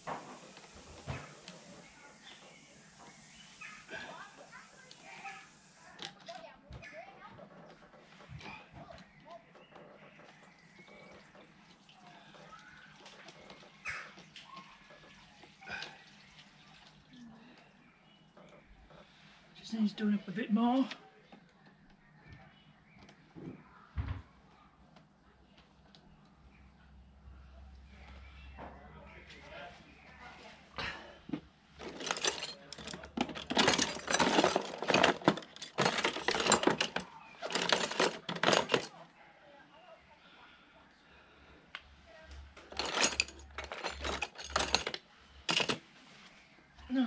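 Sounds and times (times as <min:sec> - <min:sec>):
metal hand tools clinking: 0:31.8 - 0:38.9, 0:42.7 - 0:45.8.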